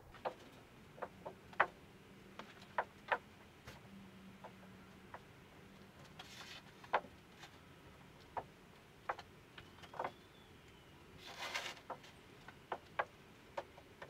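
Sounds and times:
faint steady hum: 0.0s - 14.0s
soft rustle: 5.6s - 8.9s, 11.1s - 12.6s.

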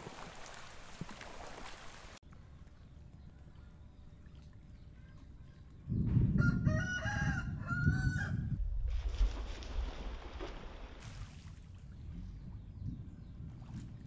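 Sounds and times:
cast net splashing into water: 0.0s - 2.2s, 8.9s - 12.0s
rooster crowing: 6.4s - 8.6s
low rumble: 7.4s - 10.4s.

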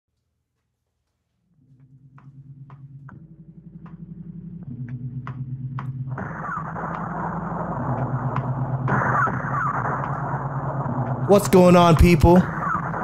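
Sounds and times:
low synth drone: 1.5s - 11.3s.

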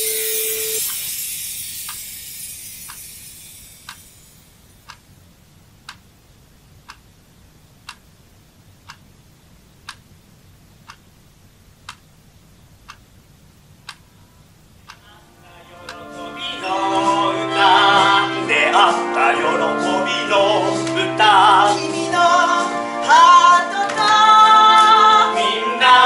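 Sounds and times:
hissing wash: 0.0s - 4.5s
clock ticking: 0.0s - 5.1s, 5.8s - 17.2s.

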